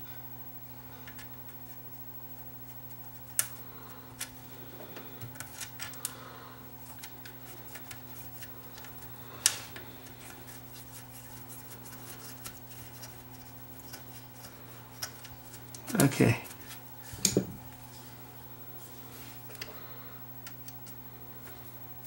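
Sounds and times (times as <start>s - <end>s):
steady low hum: 0.0s - 22.0s
hands handling wires clicking: 2.9s - 6.2s, 6.8s - 10.9s, 11.7s - 17.7s, 20.4s - 21.6s.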